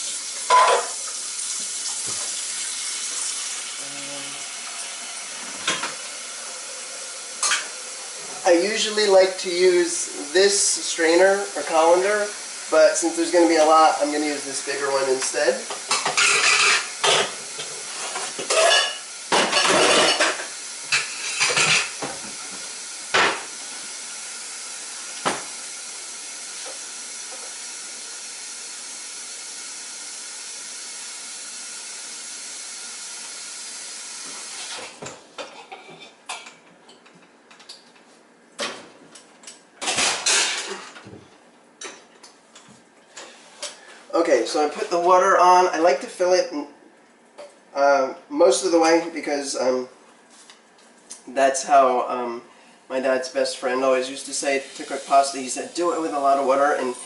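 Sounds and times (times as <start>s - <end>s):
tap water running into pot: 0.0s - 35.1s, 54.2s - 57.0s
pot and colander clattering: 15.8s - 17.4s.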